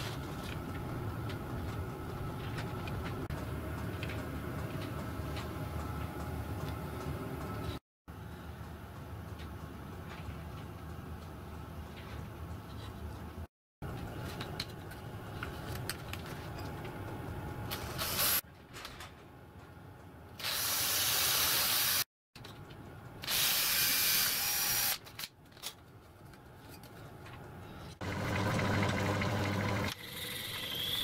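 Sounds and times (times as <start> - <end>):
cordless drill boring: 23.3 - 25.0
steady machine hum: 27.2 - 31.0.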